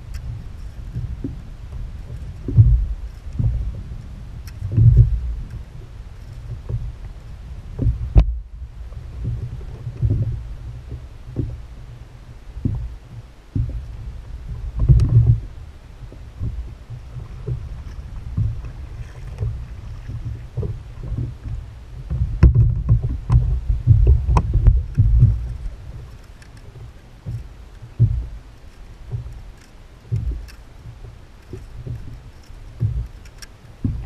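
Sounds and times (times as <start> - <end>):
paddle strokes: 0.0 - 34.0
water slapping against hull: 0.0 - 34.0
sharp knocks on hull: 22.0 - 25.5, 32.8 - 33.1.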